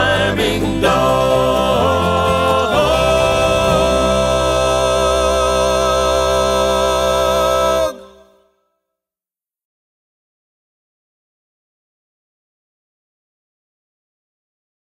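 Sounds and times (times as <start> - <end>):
band holding a chord: 0.0 - 8.2
voices singing in harmony: 0.0 - 8.5.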